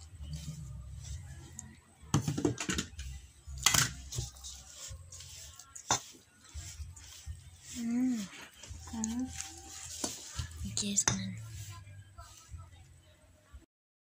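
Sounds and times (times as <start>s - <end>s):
spoon scraping metal bowl: 0.0s - 12.5s.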